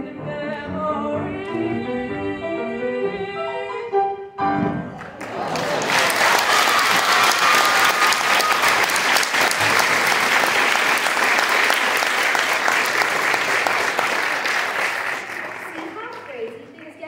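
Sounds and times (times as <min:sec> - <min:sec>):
audience applauding: 0:04.9 - 0:17.0.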